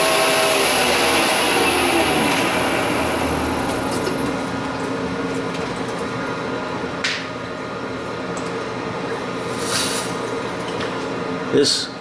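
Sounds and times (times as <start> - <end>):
lathe machine hum: 0.0 - 5.8.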